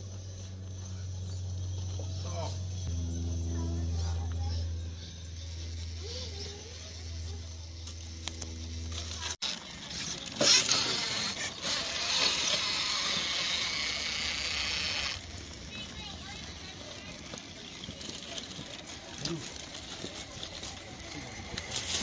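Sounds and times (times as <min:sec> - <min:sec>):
low steady hum: 0:00.0 - 0:18.0
faint motor whine: 0:00.0 - 0:22.0
tyres scrabbling on rock: 0:08.0 - 0:22.0.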